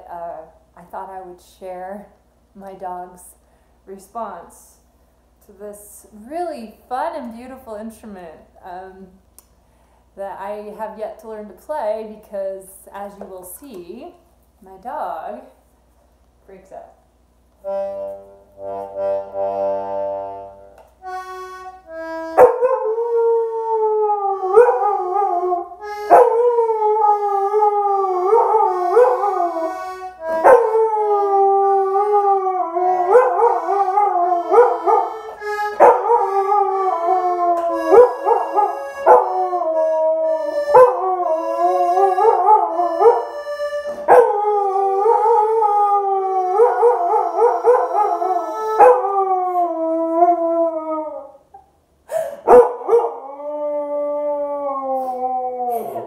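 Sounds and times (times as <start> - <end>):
button accordion chords: 17.6 - 23.0, 25.8 - 45.2, 46.3 - 49.3
husky howling: 22.4 - 43.4, 44.0 - 51.4.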